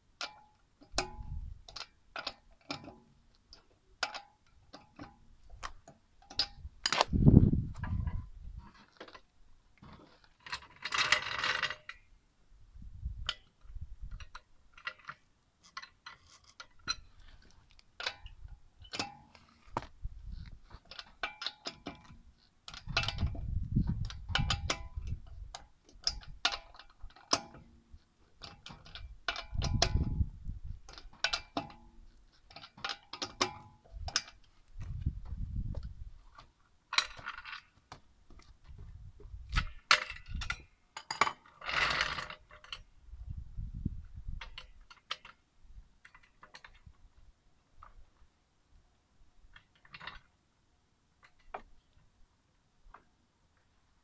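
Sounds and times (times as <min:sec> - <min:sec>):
metal clicks and clinks: 0:00.2 - 0:07.1, 0:13.2 - 0:19.6, 0:20.7 - 0:34.9, 0:39.5 - 0:42.9, 0:44.4 - 0:45.4, 0:46.0 - 0:46.9.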